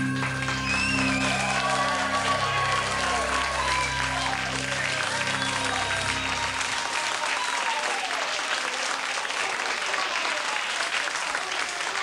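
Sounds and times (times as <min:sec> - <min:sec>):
low sustained music note: 0:00.0 - 0:07.2
voices calling out: 0:00.0 - 0:07.8
studio audience applauding: 0:00.0 - 0:12.0.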